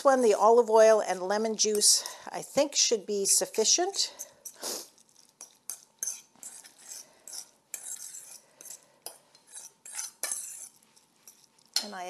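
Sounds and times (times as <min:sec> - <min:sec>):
utensil scraping metal bowl: 0:05.4 - 0:11.9.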